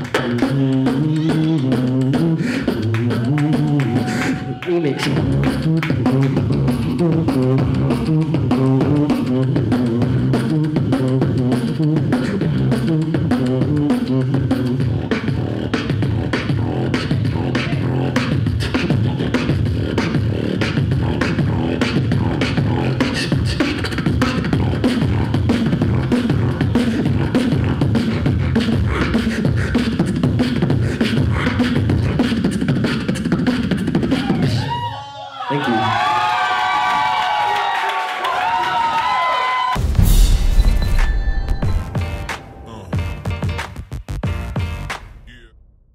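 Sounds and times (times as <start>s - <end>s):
person beatboxing: 0.0s - 34.8s
low hummed bass line: 5.2s - 18.2s.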